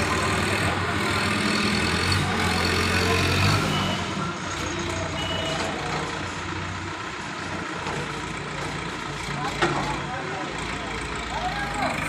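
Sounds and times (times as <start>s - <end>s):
diesel crane engine running: 0.0s - 12.0s
short high beeps: 5.2s - 5.7s.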